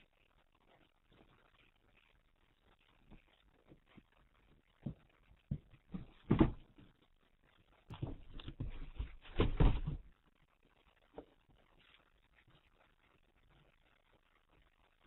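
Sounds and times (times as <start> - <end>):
cat thumping in cardboard boxes: 5.5 - 6.8, 7.9 - 10.0.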